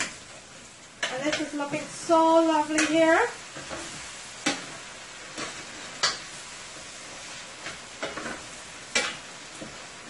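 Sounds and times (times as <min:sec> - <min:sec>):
chicken sizzling in oil: 0:00.0 - 0:10.0
metal spoon scraping a pan: 0:07.5 - 0:09.7.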